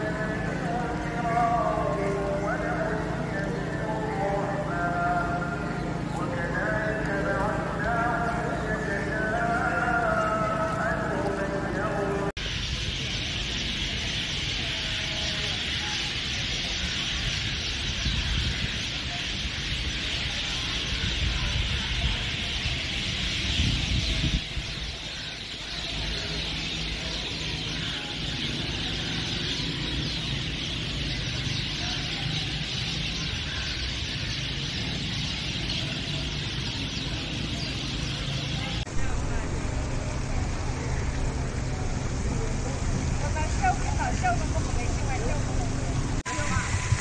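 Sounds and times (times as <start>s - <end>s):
street hiss: 30.9s - 47.0s
low rumble: 38.8s - 47.0s.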